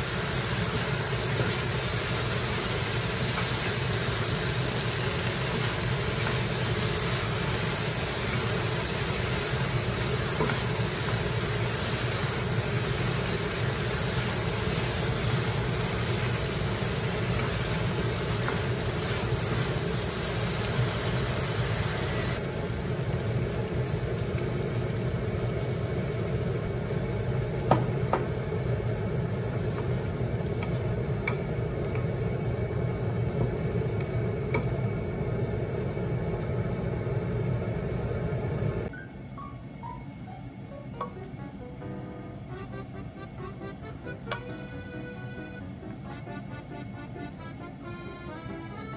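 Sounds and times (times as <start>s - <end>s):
food sizzling in a frying pan: 0.0s - 38.9s
spatula knocking against pan: 27.7s - 28.4s.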